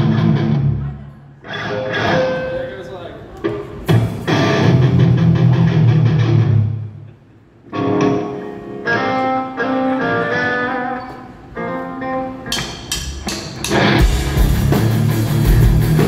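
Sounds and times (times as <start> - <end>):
electric guitar chords: 0.0 - 0.8, 4.1 - 12.6, 13.5 - 16.0.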